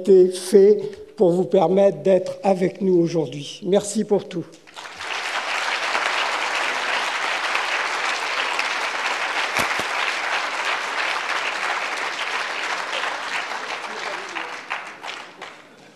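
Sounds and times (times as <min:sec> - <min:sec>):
audience applauding: 0:04.7 - 0:15.9.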